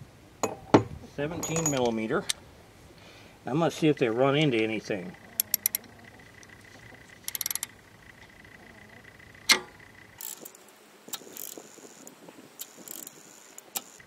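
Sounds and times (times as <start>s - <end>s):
ratchet wrench clicking: 5.4s - 5.8s, 7.2s - 7.7s, 9.5s - 12.0s, 12.6s - 14.0s
sharp metallic clack: 9.5s - 9.8s.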